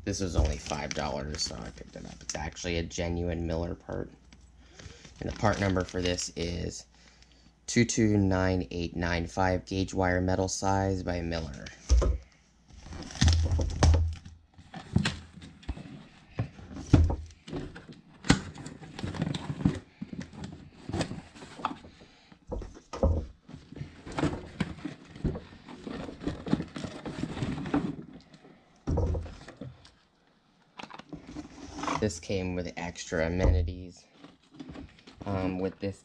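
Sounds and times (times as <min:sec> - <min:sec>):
cardboard scraping and rustling: 0:14.6 - 0:22.0, 0:23.5 - 0:28.2
heavy thumps: 0:33.4 - 0:33.8.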